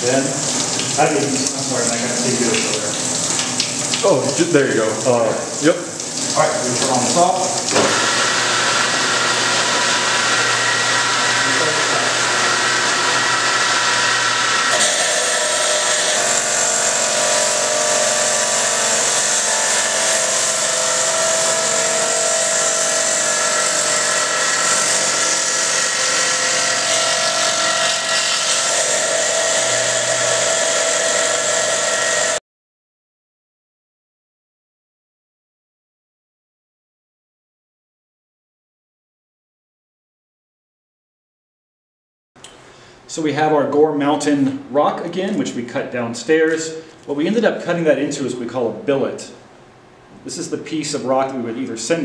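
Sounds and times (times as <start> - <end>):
saw blade whine: 7.8 - 32.4
rock saw grinding stone: 7.9 - 32.4.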